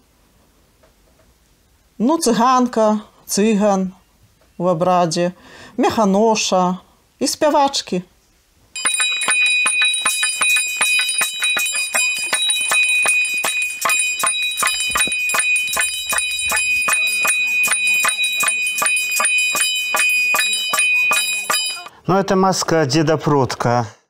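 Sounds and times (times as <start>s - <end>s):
small metal bell shaken: 8.8s - 21.9s.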